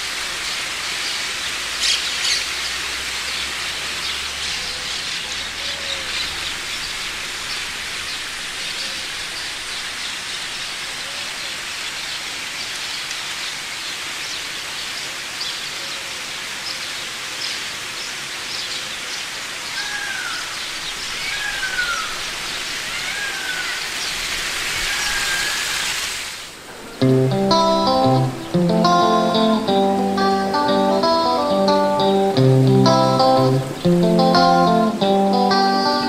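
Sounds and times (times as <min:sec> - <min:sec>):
hiss like running water: 0:00.0 - 0:36.0
small birds chirping: 0:00.5 - 0:26.0, 0:26.8 - 0:36.0
bird sliding calls: 0:19.8 - 0:26.1
acoustic guitar music: 0:27.0 - 0:36.0.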